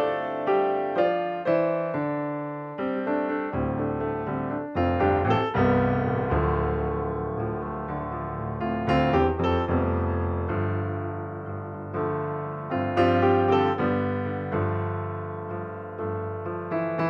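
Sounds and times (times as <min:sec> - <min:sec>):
slow solo piano: 0:00.0 - 0:17.0.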